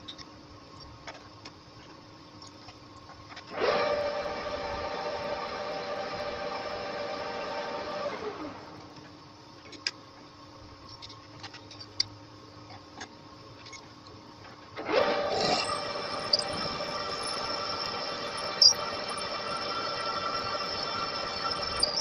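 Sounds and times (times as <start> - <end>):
metal lathe whining: 14.8 - 22.0.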